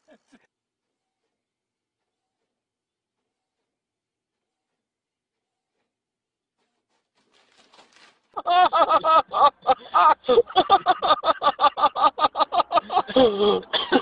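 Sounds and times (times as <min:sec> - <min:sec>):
person laughing hard: 0:00.0 - 0:00.5, 0:08.4 - 0:14.0.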